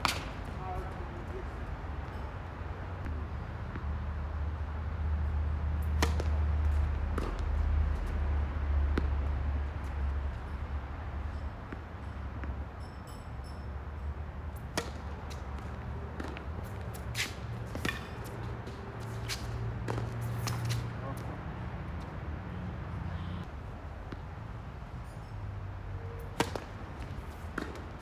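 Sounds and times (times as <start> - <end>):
racket striking tennis ball: 0.0 - 0.5, 5.8 - 7.5, 14.6 - 21.3, 26.2 - 28.0
ball bouncing on hard court: 19.8 - 20.8.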